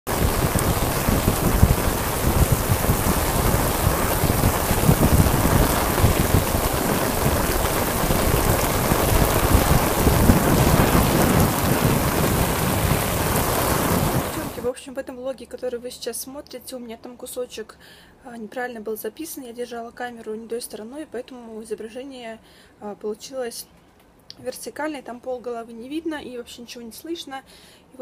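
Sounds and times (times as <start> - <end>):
heavy rain pouring on street: 0.0 - 14.7.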